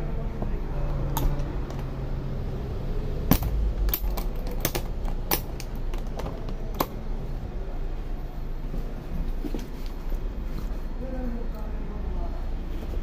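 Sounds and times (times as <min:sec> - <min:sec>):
metal clamp latch clicking: 0:03.3 - 0:07.0.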